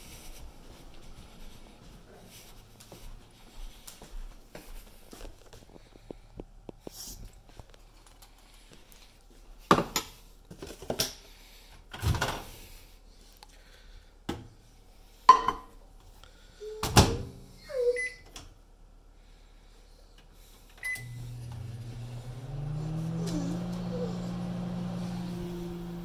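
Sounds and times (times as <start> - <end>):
microwave oven humming: 20.4 - 26.0.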